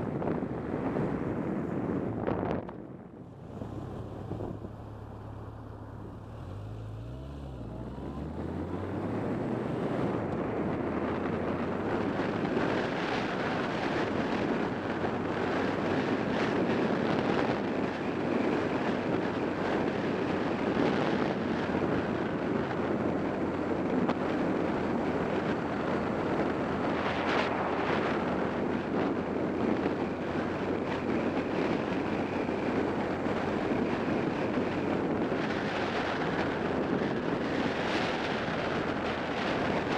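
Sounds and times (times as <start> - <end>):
motorcycle engine idling and revving: 0.0 - 39.9
wind rush on microphone: 0.0 - 39.9.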